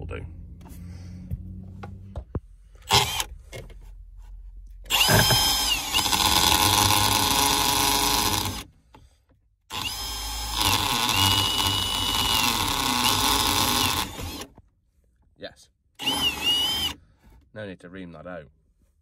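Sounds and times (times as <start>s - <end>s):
cordless drill whining: 2.9s - 3.3s, 4.9s - 8.7s, 9.7s - 14.5s, 16.0s - 17.0s.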